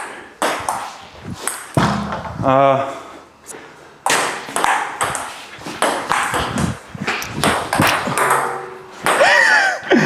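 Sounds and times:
ping-pong ball hitting paddles: 0:04.0 - 0:06.8, 0:07.4 - 0:09.4
ping-pong ball bouncing on table: 0:07.4 - 0:09.3.

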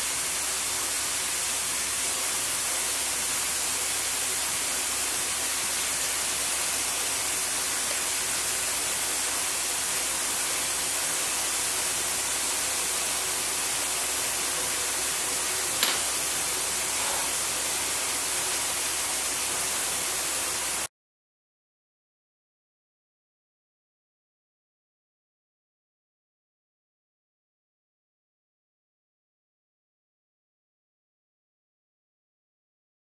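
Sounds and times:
small click: 0:15.8 - 0:16.1.

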